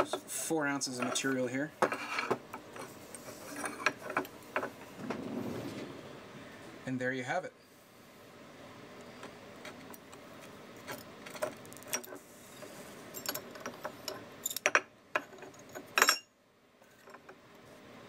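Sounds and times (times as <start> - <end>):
metal tools clinking and scraping: 0.8 - 4.8, 10.8 - 16.3.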